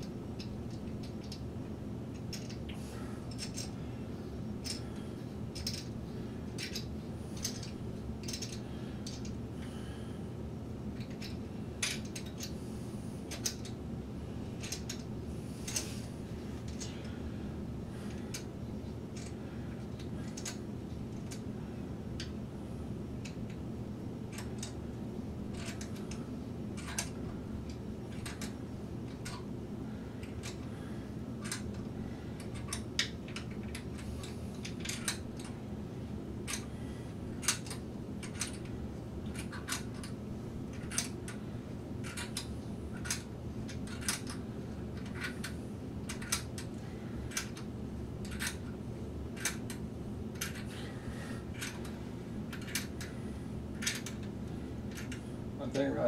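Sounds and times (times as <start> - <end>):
small clicks and taps of parts: 0.0 - 1.4, 2.1 - 3.8, 4.6 - 9.4, 11.0 - 12.6, 13.3 - 13.8, 14.6 - 15.1, 15.7 - 15.9, 18.1 - 18.5, 19.1 - 21.4, 23.2 - 23.6, 24.3 - 24.8, 25.5 - 26.2, 26.8 - 29.5, 30.2 - 30.7, 31.4 - 35.6, 36.4 - 36.7, 37.4 - 41.4, 42.0 - 44.4, 45.0 - 48.8, 49.4 - 50.7, 51.5 - 53.2, 53.8 - 55.9
steady low hum: 0.0 - 56.0.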